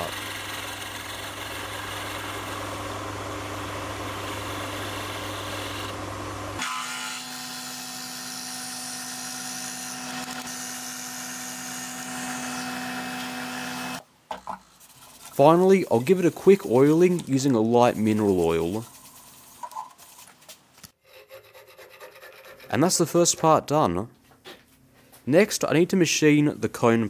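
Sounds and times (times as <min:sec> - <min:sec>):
drill boring into wood: 0:00.0 - 0:06.0, 0:06.6 - 0:14.0
lathe cutting wood: 0:00.0 - 0:14.0.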